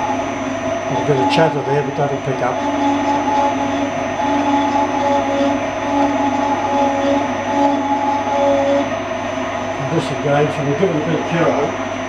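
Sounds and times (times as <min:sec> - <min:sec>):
boring machine cutting metal: 0:00.0 - 0:12.0
ringing tool chatter: 0:00.9 - 0:08.8.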